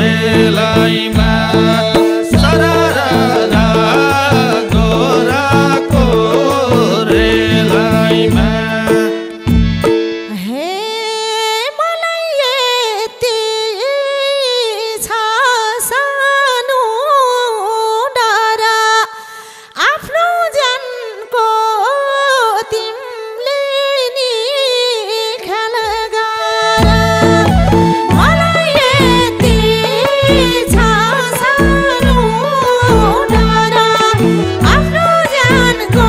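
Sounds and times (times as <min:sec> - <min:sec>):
drums and bass: 0:00.0 - 0:10.0, 0:26.8 - 0:36.0
ornamented instrumental melody: 0:00.0 - 0:11.0, 0:26.8 - 0:36.0.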